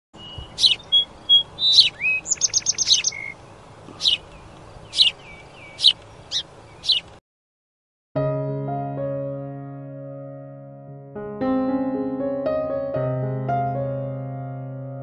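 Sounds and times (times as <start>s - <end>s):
songbird chirping: 0.2s - 7.2s.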